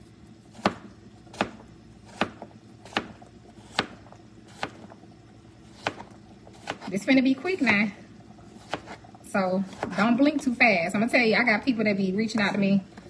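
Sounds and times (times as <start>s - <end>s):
knife chopping on a board: 0.5s - 4.9s, 5.7s - 6.9s, 8.6s - 9.0s.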